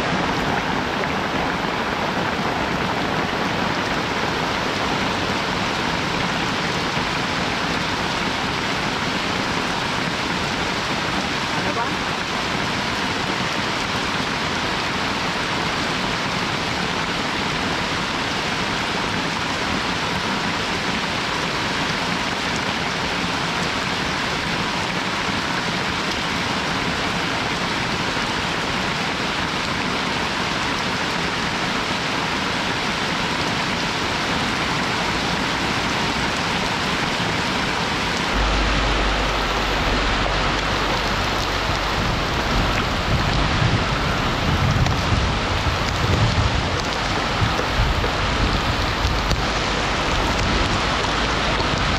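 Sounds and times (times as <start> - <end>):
steady rain: 0.0 - 51.9
deep low rumble: 38.1 - 51.9.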